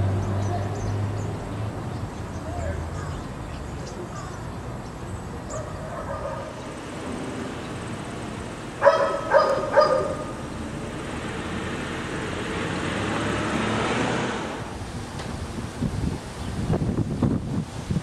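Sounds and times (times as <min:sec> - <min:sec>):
outdoor background rush: 0:00.0 - 0:18.0
dog barking: 0:05.5 - 0:06.6, 0:08.8 - 0:10.4.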